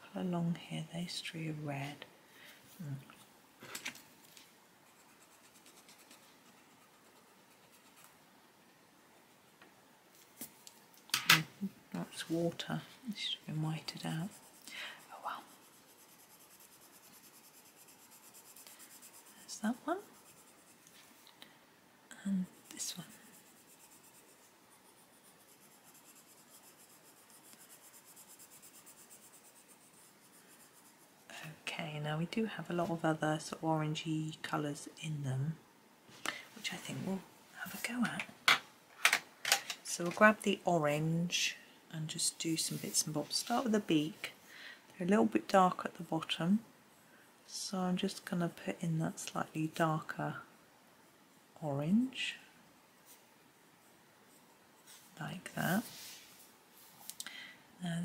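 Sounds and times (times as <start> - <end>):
drawing tool scratching on paper: 4.9 - 8.1, 15.4 - 20.9, 22.8 - 31.3.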